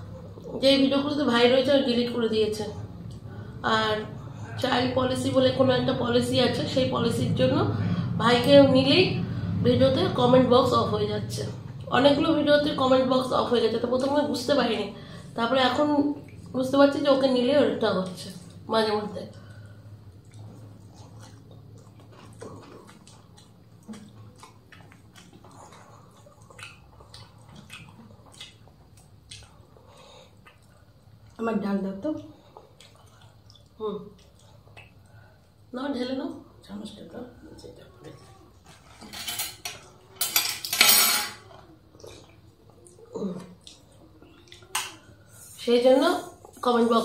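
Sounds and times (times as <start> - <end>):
chewing with wet mouth clicks: 16.2 - 16.6, 19.3 - 31.4, 32.2 - 35.6, 41.6 - 45.1.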